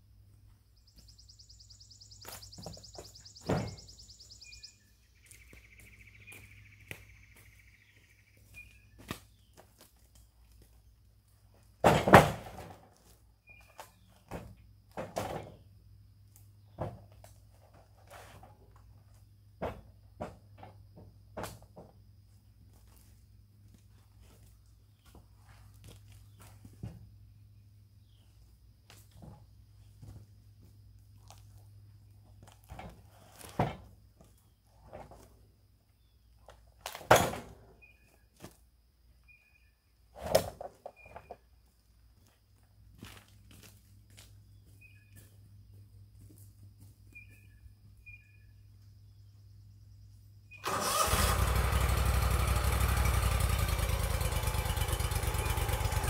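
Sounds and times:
wooden boards knocking and clattering: 0:11.8 - 0:12.9.

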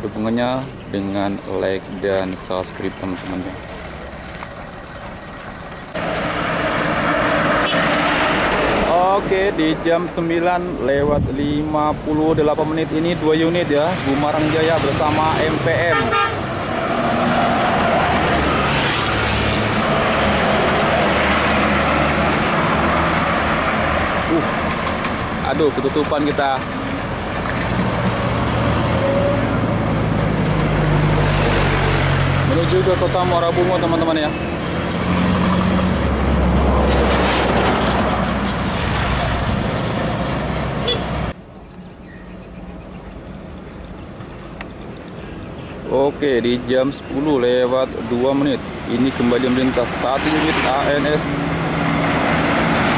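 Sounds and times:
diesel engines rumbling: 0:00.0 - 0:52.9
road noise: 0:00.0 - 0:52.9
tyres hissing on road: 0:05.9 - 0:09.6
vehicle horn: 0:15.8 - 0:16.5, 0:40.8 - 0:41.2.

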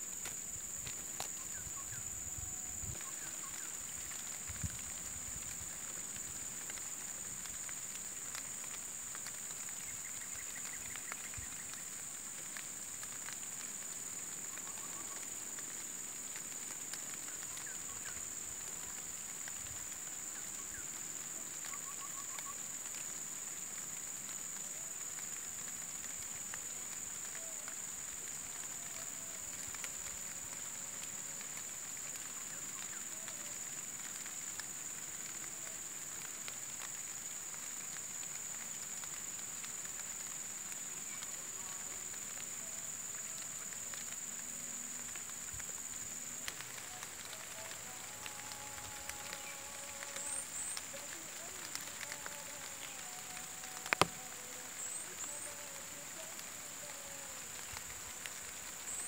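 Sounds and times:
faint crackles: 0:00.0 - 0:59.0
high-pitched insect drone: 0:39.9 - 0:59.0.

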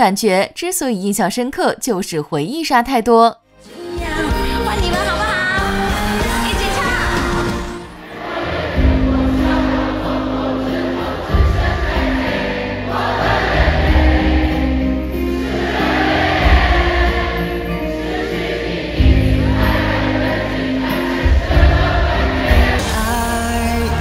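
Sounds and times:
live band playing: 0:03.7 - 0:08.1, 0:20.9 - 0:24.0
crowd singing along: 0:03.7 - 0:24.0.

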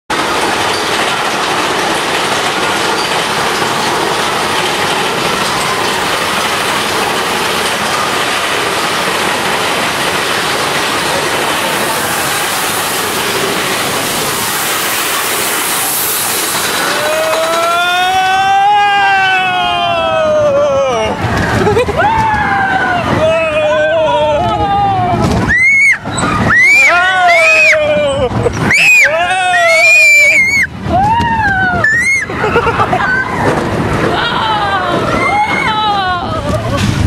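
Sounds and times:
roller coaster cars rattling: 0:00.1 - 0:37.0.

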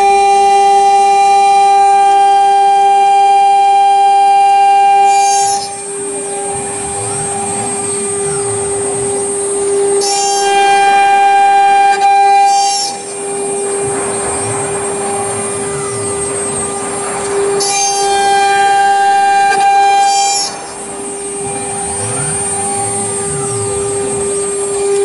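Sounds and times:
router spindle cutting plastic: 0:04.5 - 0:25.0.

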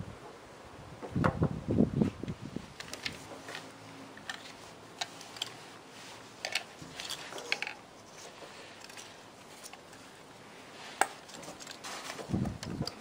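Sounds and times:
paper crumpling rustle: 0:02.7 - 0:12.5
metal parts clicking: 0:06.4 - 0:07.8.

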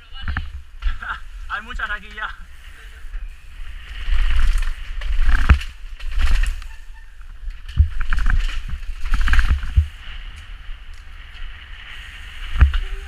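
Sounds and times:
bike clattering: 0:03.1 - 0:13.0
wind rumble on microphone: 0:03.4 - 0:13.0.

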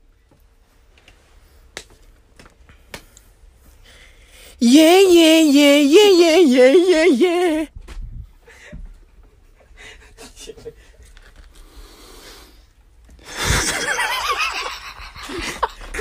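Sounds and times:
faint breathing: 0:11.5 - 0:13.5
loud laughter: 0:13.3 - 0:16.0.

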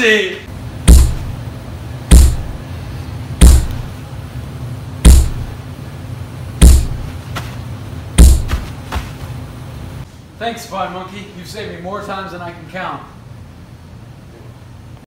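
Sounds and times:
low steady hum: 0:00.4 - 0:15.0
heavy punch hits: 0:00.9 - 0:01.4, 0:02.1 - 0:02.6, 0:03.4 - 0:03.9, 0:05.0 - 0:05.6, 0:06.6 - 0:07.1, 0:08.2 - 0:08.7.

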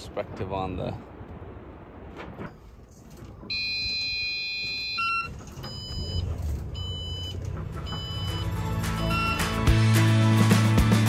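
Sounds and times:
low hum: 0:00.0 - 0:09.4.

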